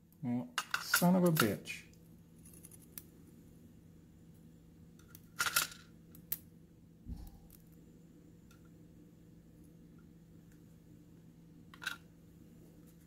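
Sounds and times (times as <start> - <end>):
faint steady hum: 0.0 - 13.0
small metal parts clicking: 5.0 - 6.4
soft low thump: 7.0 - 7.5.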